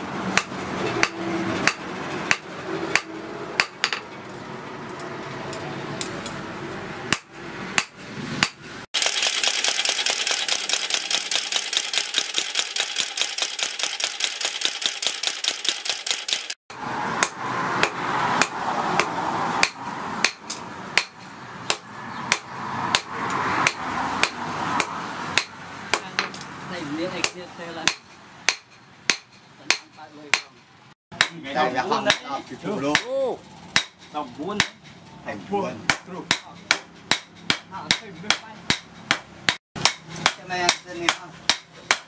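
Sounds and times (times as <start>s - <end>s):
hand hammer striking hot steel: 0.3s - 4.0s, 7.1s - 8.6s, 17.2s - 26.4s, 27.2s - 30.6s, 31.2s - 31.4s, 32.0s - 32.3s, 32.9s - 33.1s, 33.8s - 34.9s, 35.9s - 42.0s
power hammer pounding: 0.3s - 4.0s, 7.1s - 16.6s, 17.2s - 26.3s, 35.9s - 42.0s.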